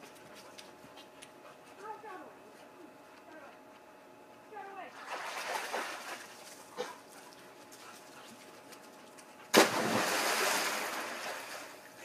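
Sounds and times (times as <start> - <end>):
splash into swimming pool: 5.0 - 6.4, 9.5 - 11.7.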